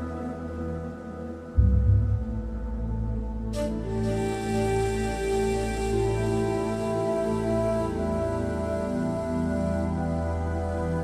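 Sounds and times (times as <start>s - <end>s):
deep bass drone: 0.0s - 5.0s
slow new-age music: 0.0s - 11.0s.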